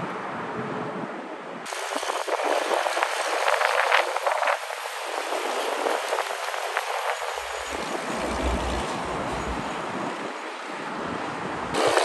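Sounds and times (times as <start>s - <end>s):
tyres hissing on road: 1.7s - 12.0s
container rattling and clanking: 7.5s - 9.6s.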